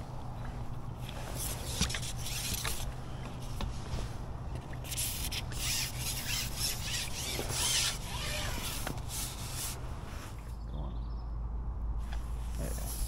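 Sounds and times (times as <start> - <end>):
fishing pole scraping and rubbing: 1.0 - 2.9, 4.8 - 10.4.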